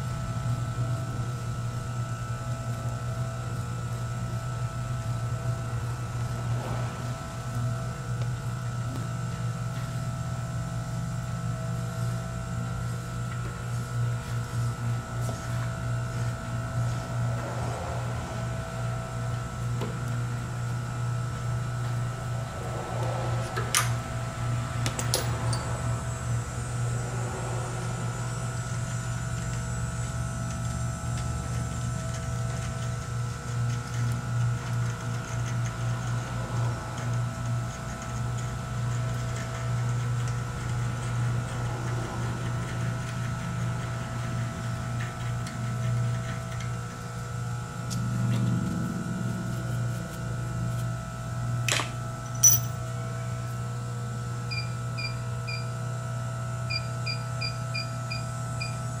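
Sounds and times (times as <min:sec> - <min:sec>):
steady low hum: 0:00.0 - 0:59.0
tap wrench handling: 0:51.7 - 0:52.8.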